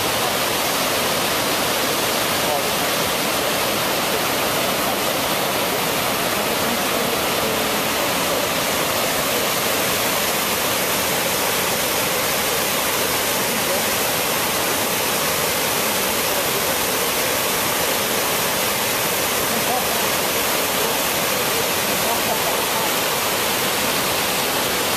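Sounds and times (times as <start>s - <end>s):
waterfall rushing: 0.0s - 24.9s.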